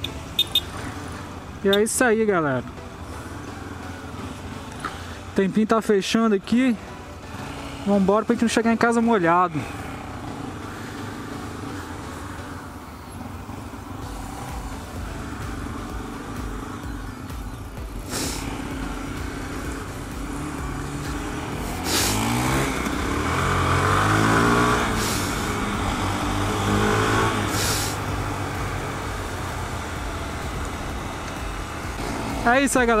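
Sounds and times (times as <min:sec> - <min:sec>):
motorcycle engine accelerating: 0:06.8 - 0:33.0.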